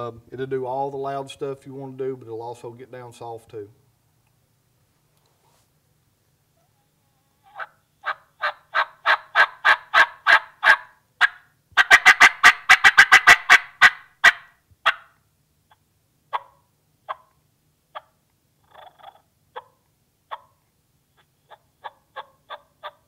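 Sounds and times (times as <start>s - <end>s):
turkey call yelps: 6.6s - 20.6s, 21.2s - 23.0s.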